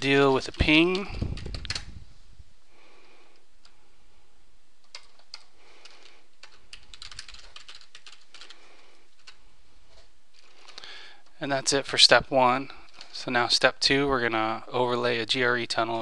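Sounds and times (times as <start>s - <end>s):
faint background hiss: 0.0s - 16.0s
keyboard keystroke clicks: 0.9s - 1.9s.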